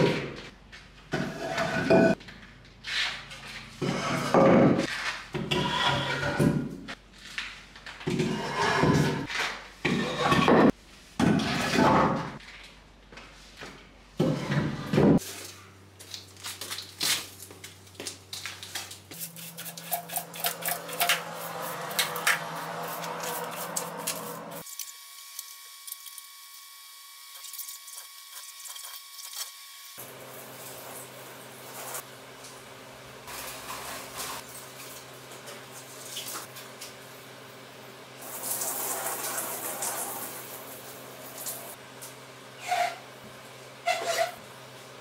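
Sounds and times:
broom sweeping tiles: 0:18.4 - 0:24.9, 0:30.0 - 0:32.1, 0:33.2 - 0:35.0.

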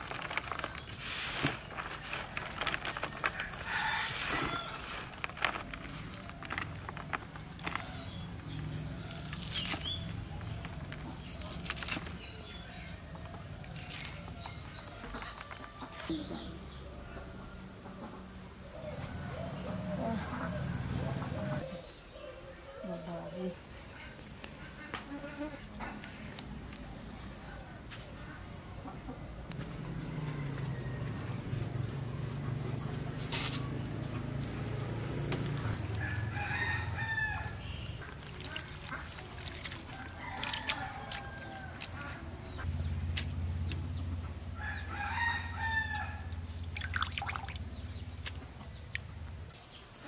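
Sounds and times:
hens clucking: 0:38.0 - 0:42.7.

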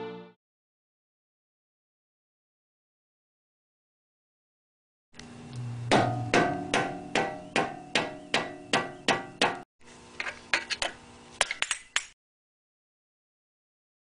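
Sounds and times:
hammer striking metal: 0:05.8 - 0:09.6.

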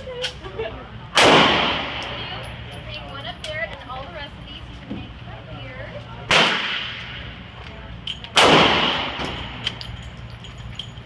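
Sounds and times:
handgun shots echoing indoors: 0:08.4 - 0:09.8.

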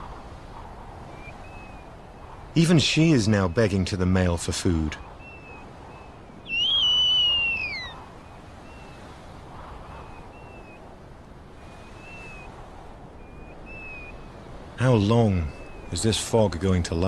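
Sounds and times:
owl begging call: 0:06.4 - 0:08.0
faint short high calls: 0:06.4 - 0:08.1.

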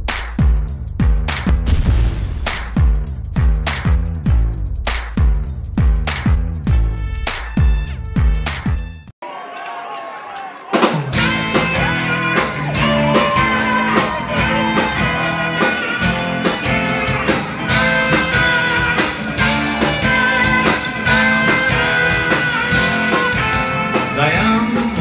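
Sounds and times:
rock band playing: 0:10.7 - 0:25.0
electric guitar lead: 0:11.2 - 0:25.0.

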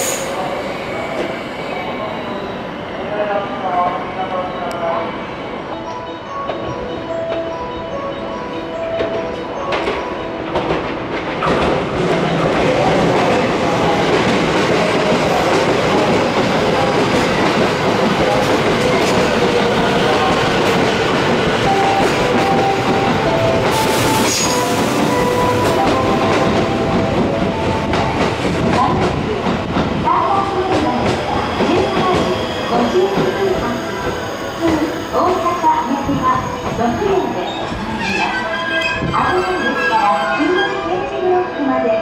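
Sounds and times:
train wheels rumbling on rails: 0:09.0 - 0:39.9.

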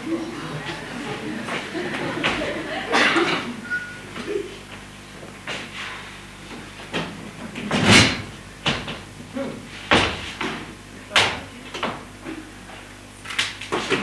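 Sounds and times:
audience voices: 0:00.0 - 0:03.7.

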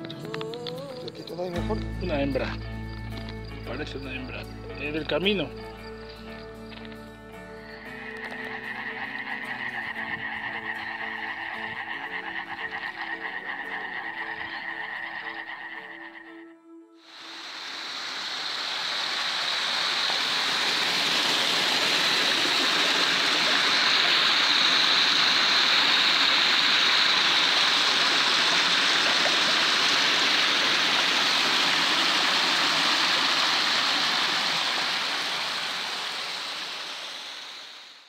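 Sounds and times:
stream rushing over rocks: 0:17.1 - 0:38.0.

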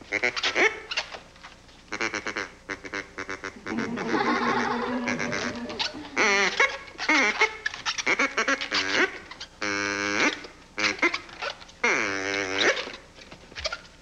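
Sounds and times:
balloons squeaking while twisted: 0:00.0 - 0:04.1, 0:05.0 - 0:14.0
balloon squeal: 0:03.4 - 0:09.1.

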